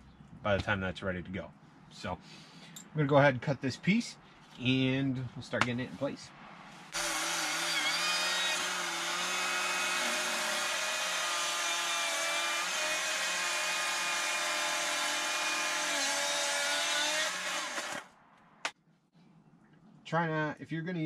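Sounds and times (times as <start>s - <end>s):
chainsaw cutting wood: 6.9s - 18.8s.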